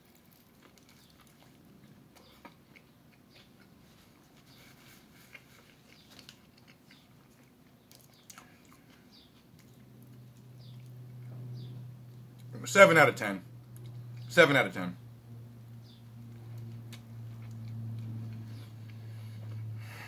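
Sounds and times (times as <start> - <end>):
person chewing food: 0.0 - 11.3, 16.2 - 19.8.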